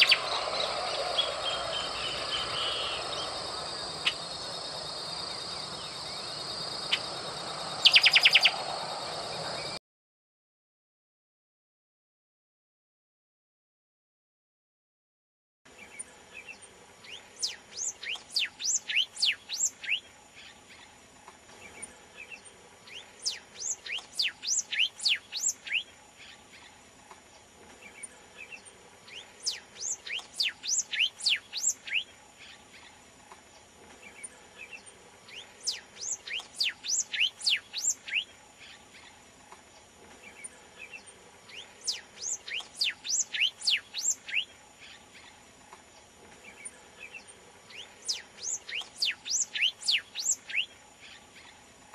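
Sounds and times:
bird singing: 0.0 - 9.8, 15.7 - 26.8, 27.7 - 33.0, 33.6 - 51.7
faint steady hiss: 15.7 - 51.9.

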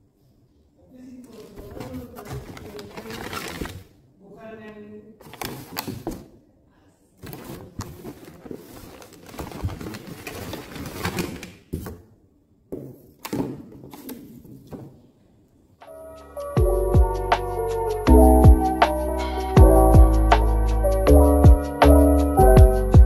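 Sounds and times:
plastic packaging rustling: 1.3 - 4.0, 5.2 - 6.3, 7.2 - 11.7
background music: 15.8 - 23.0.

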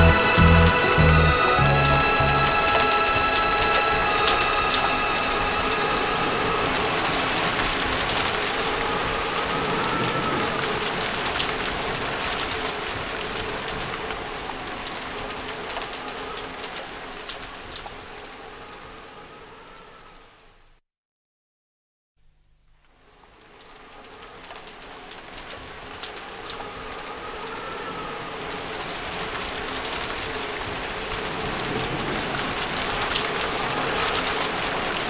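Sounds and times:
held music chord: 0.0 - 7.8
hiss with crackles: 0.2 - 20.6, 22.7 - 35.0.

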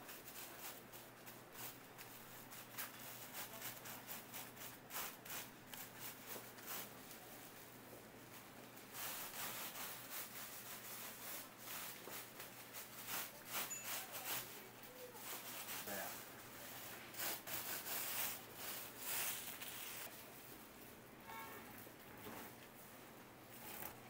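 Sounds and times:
hands and tools scraping snack: 17.1 - 20.1.

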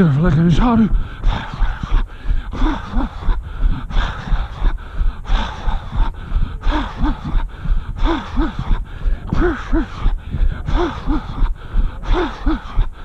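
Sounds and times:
low rumble: 0.0 - 13.0
runner's heavy breathing: 0.0 - 13.0.

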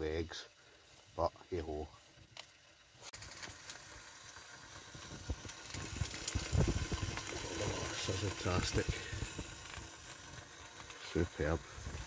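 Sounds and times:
bacon sizzling: 2.4 - 12.0.

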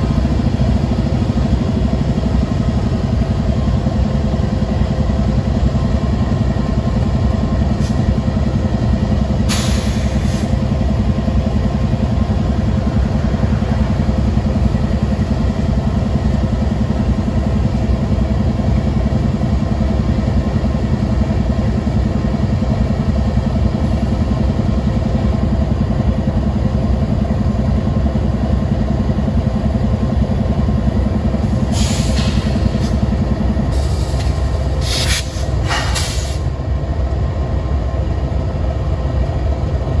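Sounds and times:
diesel locomotives rumbling: 0.0 - 40.0
brief hisses: 33.8 - 36.4.

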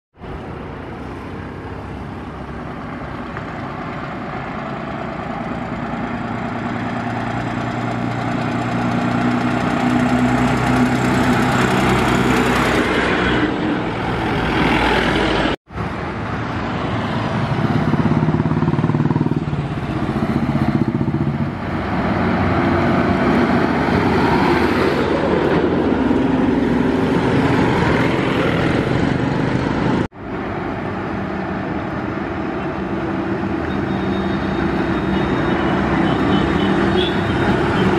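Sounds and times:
bus diesel engine passing: 0.2 - 37.9
tyre and road noise: 0.2 - 37.9
loud passing vehicle engine: 0.4 - 37.9.

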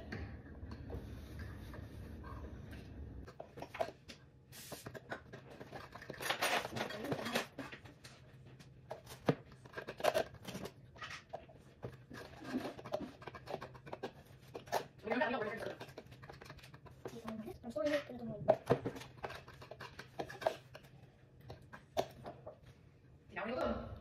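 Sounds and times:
utensil stirring eggs in bowl: 4.6 - 7.9, 8.9 - 22.7.

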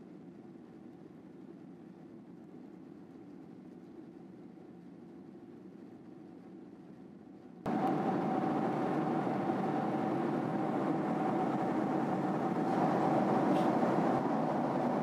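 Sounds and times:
airliner cabin engine rush: 7.7 - 15.0.

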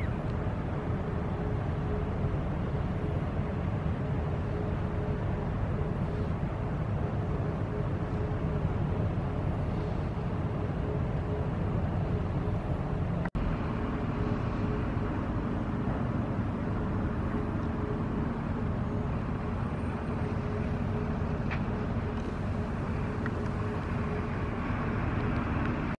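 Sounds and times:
faint steady hum: 0.0 - 26.0
low harbour rumble: 0.0 - 26.0.

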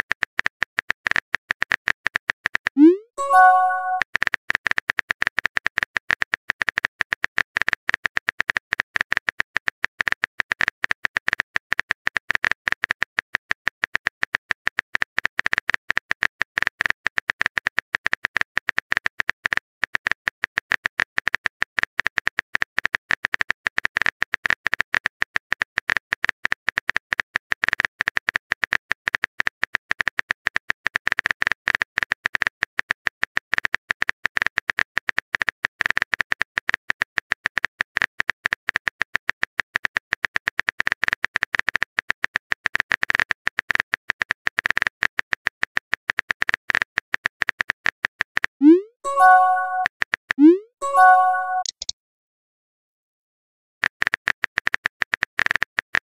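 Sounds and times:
keyboard typing clicks: 2.8 - 4.0, 48.6 - 51.9.

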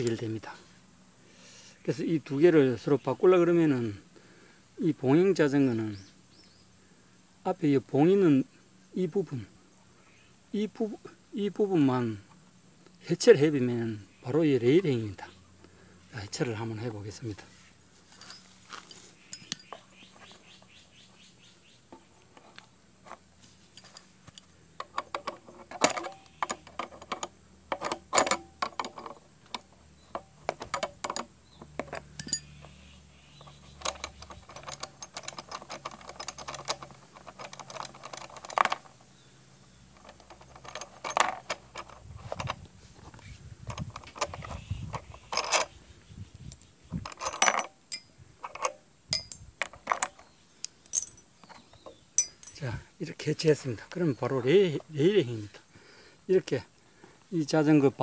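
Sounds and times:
small steel parts clicking: 23.7 - 32.8, 33.4 - 39.1, 39.9 - 42.6, 43.7 - 45.8, 46.5 - 52.7.

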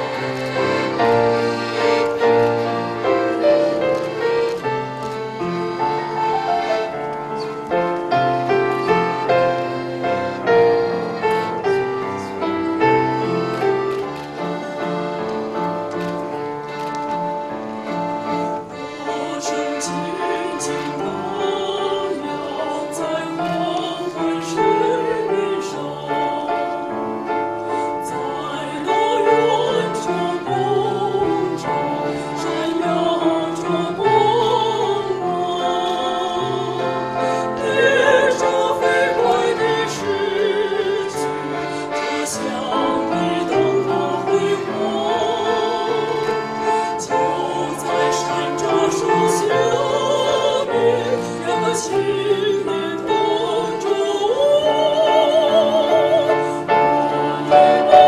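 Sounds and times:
accordion: 0.0 - 58.0
women singing operatic harmony: 18.4 - 58.0.

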